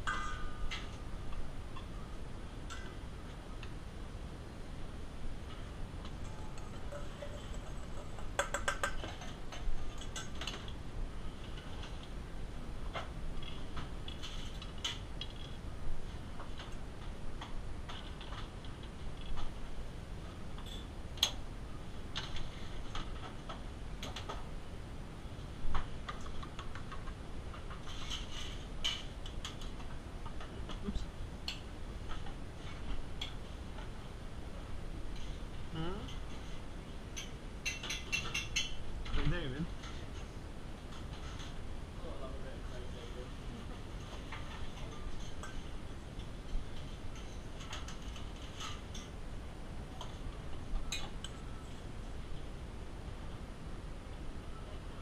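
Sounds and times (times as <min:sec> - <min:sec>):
metal clinking on bowl and plate: 0:00.0 - 0:00.9
low background noise: 0:00.0 - 0:55.0
kitchen hum: 0:04.4 - 0:12.0
clicks and taps in metal bowl: 0:06.6 - 0:09.3.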